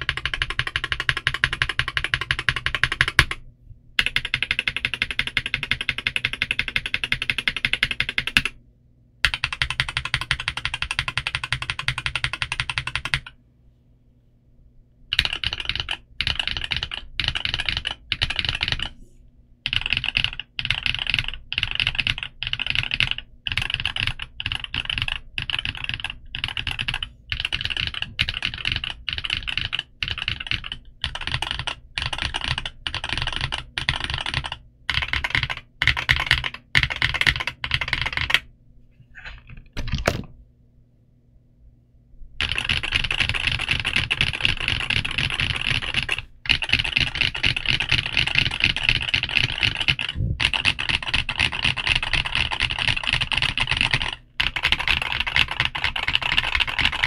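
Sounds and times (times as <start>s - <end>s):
mechanical keyboard typing: 0.0s - 3.4s, 4.0s - 8.6s, 9.2s - 13.3s, 15.1s - 18.9s, 19.6s - 38.5s, 42.4s - 57.0s.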